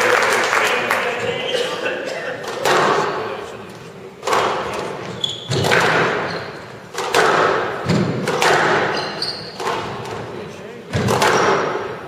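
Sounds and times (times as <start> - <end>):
squash racket striking ball: 2.4 - 3.4, 4.1 - 12.0.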